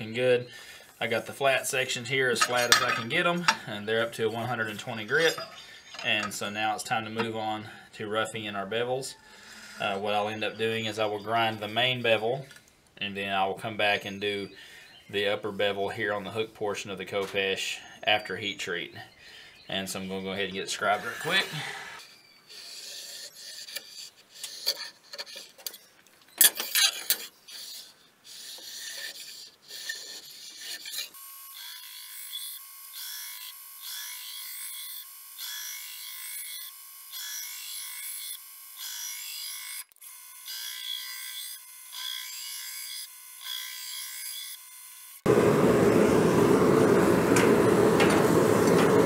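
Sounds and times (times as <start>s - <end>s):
belt grinder rasping on blade: 20.8s - 45.3s
scriber scratching on steel: 22.5s - 31.2s.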